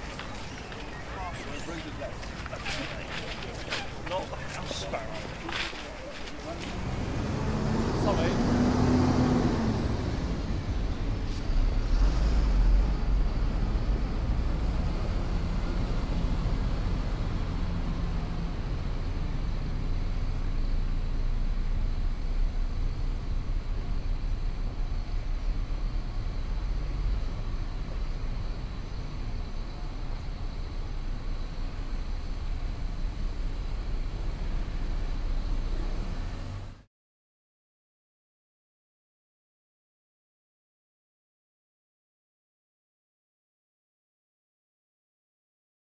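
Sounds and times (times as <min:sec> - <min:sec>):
low rumble of road traffic: 0:00.0 - 0:36.9.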